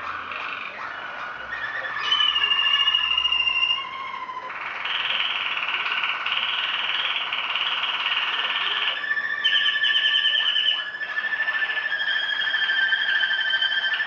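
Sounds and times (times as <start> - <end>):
canary singing with trills: 0.0 - 14.0.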